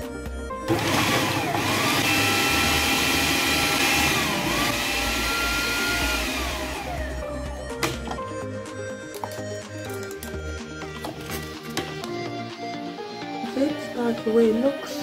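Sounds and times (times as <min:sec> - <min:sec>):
food processor motor whining: 0:00.6 - 0:08.1.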